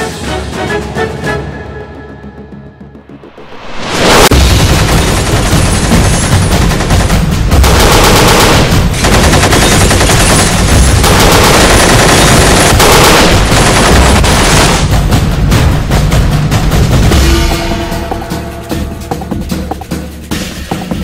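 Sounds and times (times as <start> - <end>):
automatic gunfire bursts: 4.9 - 14.8.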